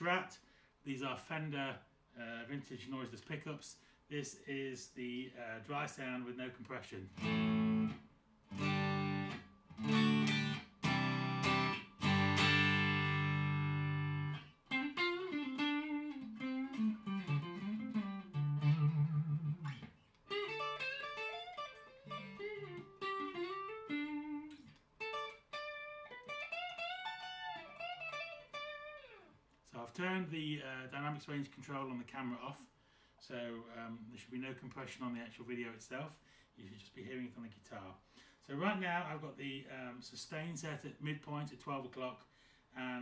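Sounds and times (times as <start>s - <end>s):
electric guitar: 7.1s - 29.4s.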